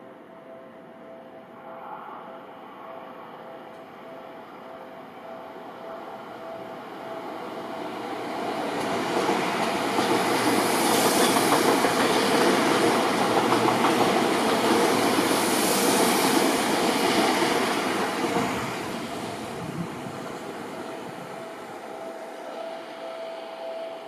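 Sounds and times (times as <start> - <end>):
train wheels on rails: 6.6 - 24.0.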